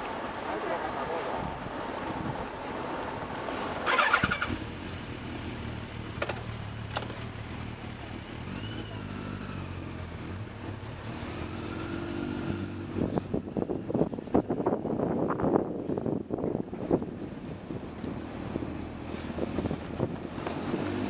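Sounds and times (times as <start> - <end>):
motorcycle engines idling: 3.5 - 11.3
motorcycle pulling away: 3.8 - 13.6, 18.3 - 21.0.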